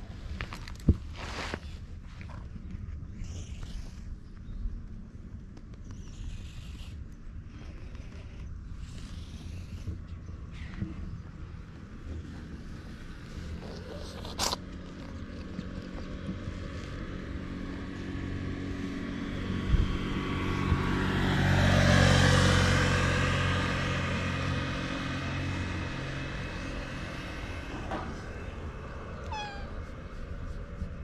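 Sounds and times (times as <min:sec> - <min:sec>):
motor engine passing by: 0:07.5 - 0:31.0
cat meowing: 0:29.2 - 0:29.9.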